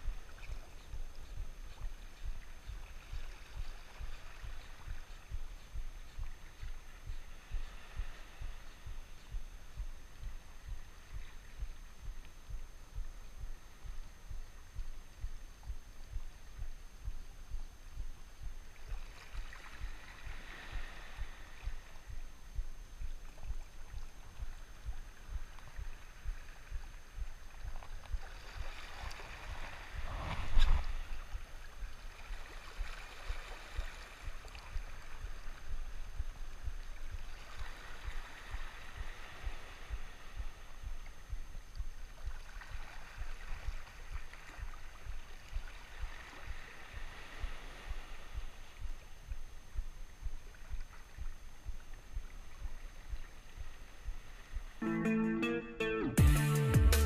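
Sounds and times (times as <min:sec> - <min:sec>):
small waves lapping on rocks: 0:18.7 - 0:22.1, 0:23.3 - 0:41.3, 0:41.9 - 0:49.3
wave splash: 0:18.8 - 0:22.2, 0:23.4 - 0:41.3, 0:42.0 - 0:49.2.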